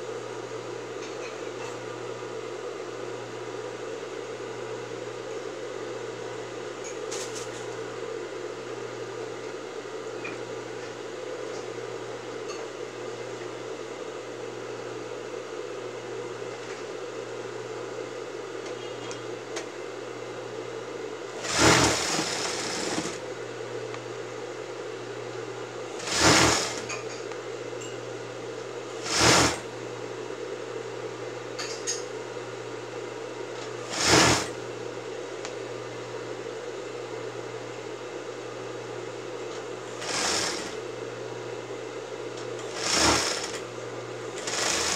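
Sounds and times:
sewing machine stitching: 21.4 - 23.2, 26.0 - 27.0, 29.0 - 29.7, 33.8 - 34.6, 39.9 - 40.8, 42.6 - 43.6, 44.3 - 44.9.

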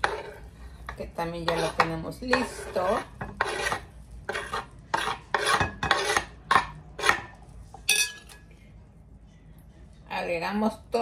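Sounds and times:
knife scraping corn off board: 2.4 - 6.3.

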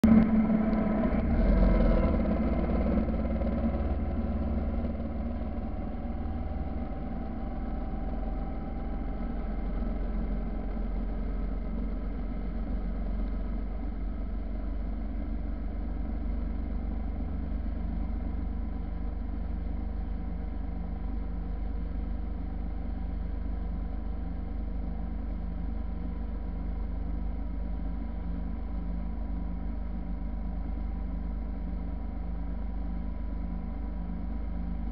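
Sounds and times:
motorcycle engine running: 0.0 - 24.3.

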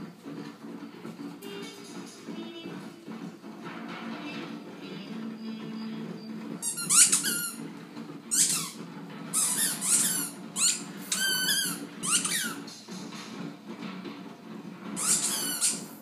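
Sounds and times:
squeaky dog toy squeaking: 6.6 - 7.6, 8.3 - 12.6, 15.0 - 15.9.

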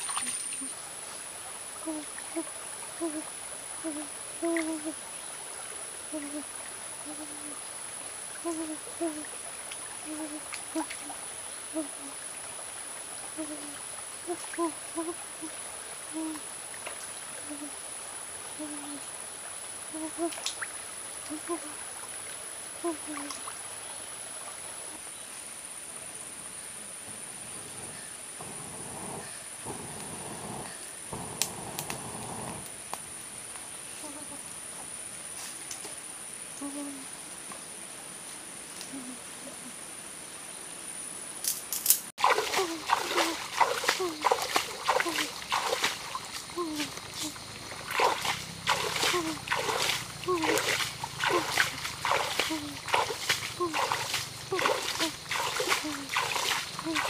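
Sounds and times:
shallow stream running: 0.0 - 57.0
high-pitched insect drone: 1.8 - 5.0, 8.4 - 9.3, 13.4 - 16.5, 42.2 - 57.0.

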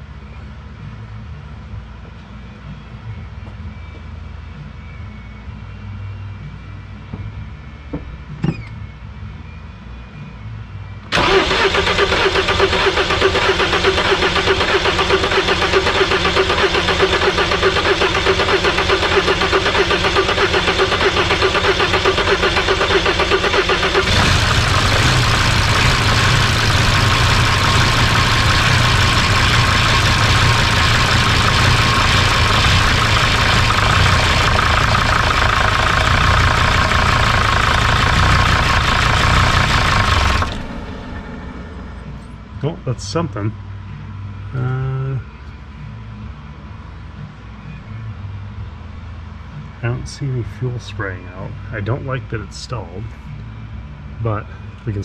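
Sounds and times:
starter motor cranking: 11.1 - 40.8
diesel engine clattering: 11.1 - 43.5.

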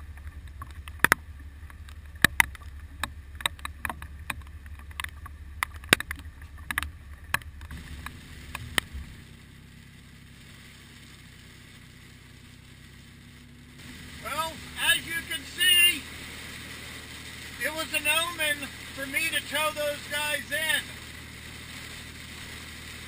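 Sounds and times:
car cabin noise on wet road: 0.0 - 23.0
low wind rumble: 0.0 - 23.0
rain tapping on aluminium boat: 0.0 - 23.0.

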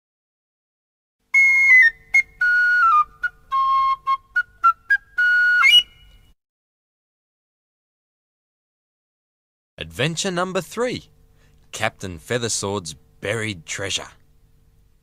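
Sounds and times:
high whistle-like pipe tune: 1.3 - 6.4.

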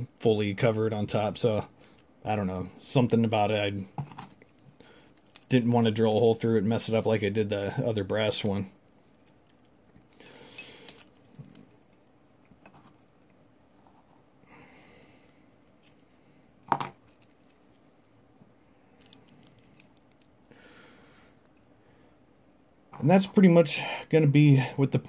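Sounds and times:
keys jangling: 3.7 - 5.7, 9.2 - 13.7, 14.7 - 17.8, 19.0 - 20.4.

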